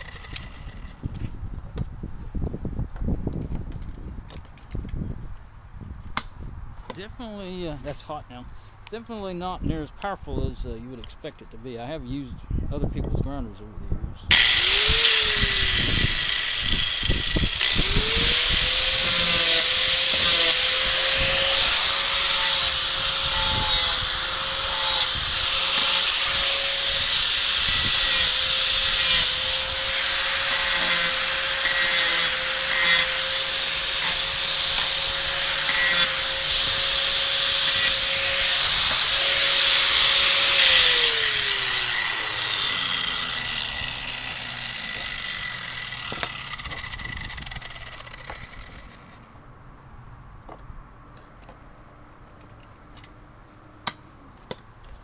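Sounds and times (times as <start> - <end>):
angle grinder grinding steel: 0.0 - 1.0, 14.3 - 49.3
grinder motor winding down: 14.3 - 49.3.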